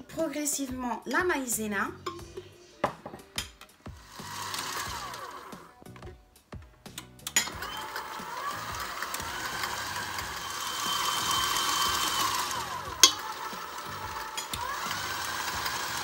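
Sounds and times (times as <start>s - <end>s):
stand mixer motor whine: 4.0s - 5.7s, 7.4s - 16.0s.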